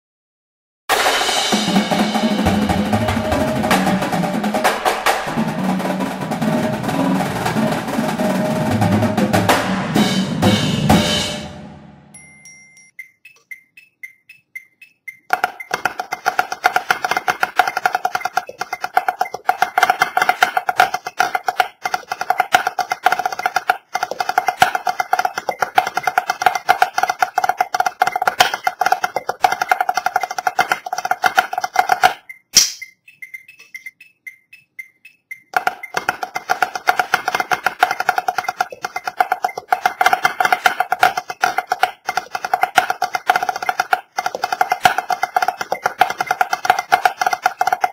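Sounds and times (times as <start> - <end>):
rapid snare drum rolls: 0.9 - 11.8, 15.3 - 32.2, 35.6 - 47.9
sharp click: 32.1 - 36.0.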